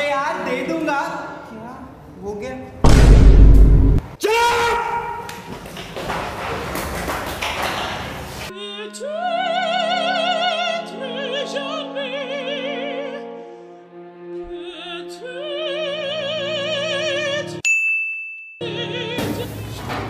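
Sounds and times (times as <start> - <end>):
operatic high voice singing: 8.5 - 13.4, 14.4 - 17.6, 18.6 - 19.6.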